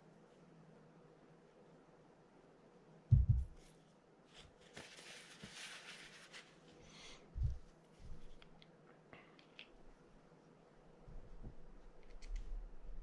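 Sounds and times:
dull knock: 3.1s - 3.5s
small clicks: 12.0s - 12.6s.

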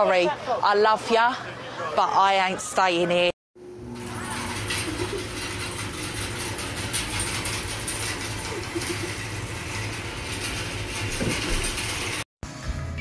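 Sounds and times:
low motor hum: 3.6s - 12.9s
conveyor chain rattling: 4.0s - 12.2s.

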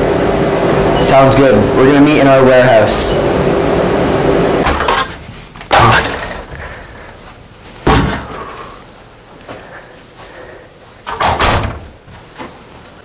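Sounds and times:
door banging: 7.8s - 8.4s, 11.1s - 12.0s.

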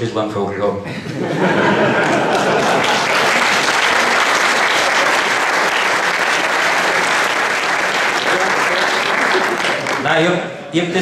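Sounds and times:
large audience clapping: 1.8s - 10.2s.

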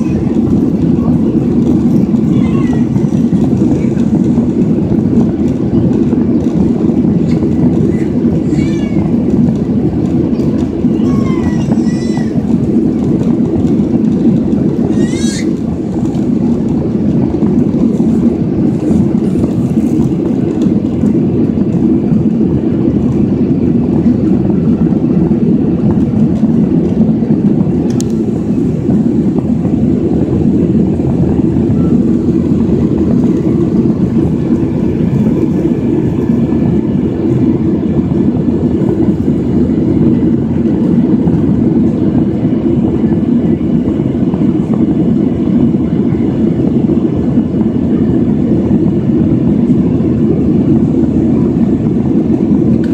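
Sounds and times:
jet cabin engine and air noise: 0.0s - 52.9s
click: 27.9s - 28.2s.

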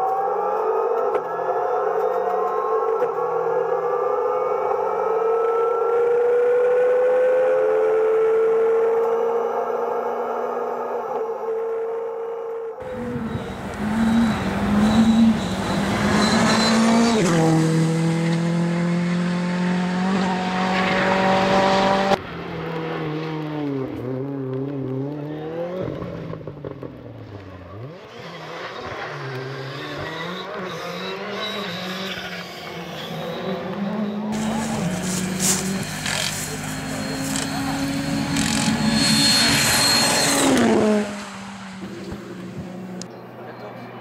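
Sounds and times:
rally car engine at full throttle: 4.4s - 11.8s, 12.8s - 43.7s
rally car engine revving: 12.8s - 43.1s.

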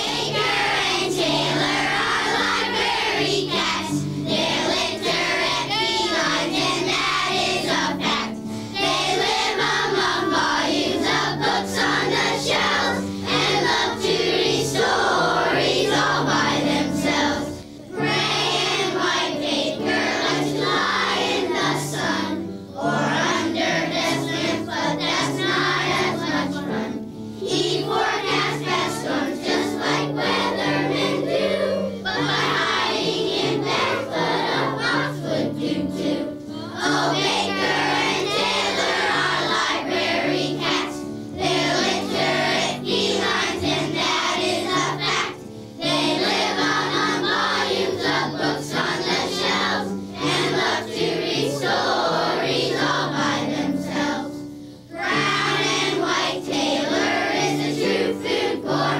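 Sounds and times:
chorus singing over a beat: 0.0s - 54.3s, 54.9s - 58.9s.

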